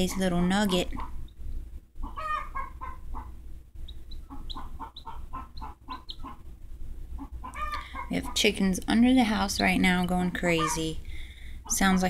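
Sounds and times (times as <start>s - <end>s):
chickens clucking and squawking: 2.0s - 11.0s.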